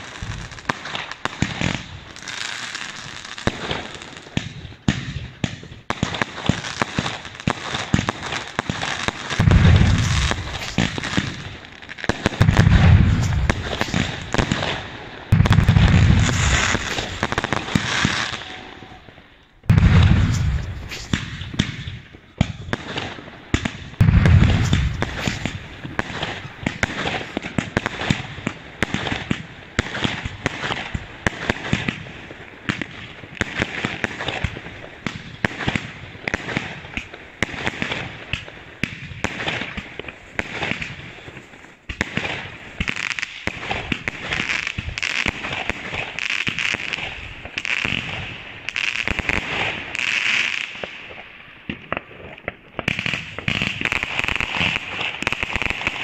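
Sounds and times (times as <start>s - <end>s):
firework booms: 0.0s - 2.2s, 3.1s - 50.0s
firework crackling pops: 0.0s - 56.0s.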